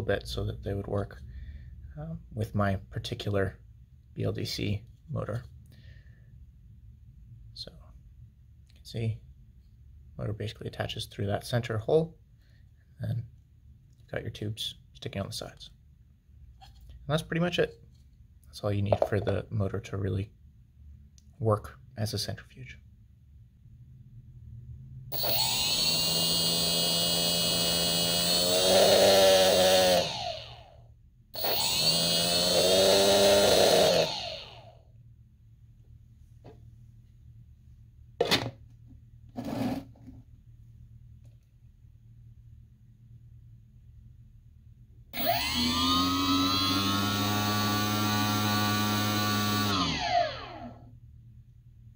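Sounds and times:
electric motor whining: 0:25.1 - 0:30.7, 0:31.4 - 0:34.7, 0:45.2 - 0:50.8.

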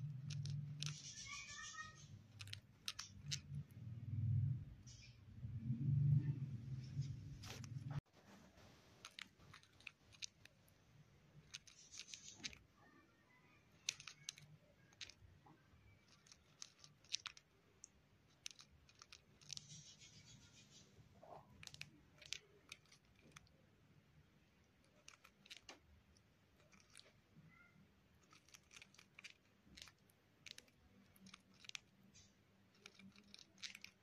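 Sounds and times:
bird grinding its beak: 0:00.0 - 0:03.6, 0:11.4 - 0:12.6, 0:16.0 - 0:17.5, 0:18.3 - 0:23.5, 0:24.8 - 0:25.8, 0:26.6 - 0:27.2, 0:28.2 - 0:34.0.

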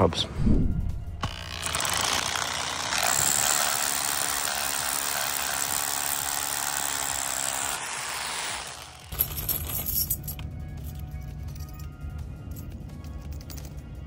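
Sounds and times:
hammer drill boring into concrete: 0:01.2 - 0:09.2.

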